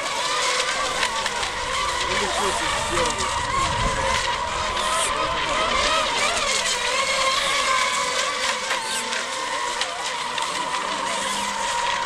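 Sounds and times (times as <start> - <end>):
rc boat motors whining: 0.0 - 12.0.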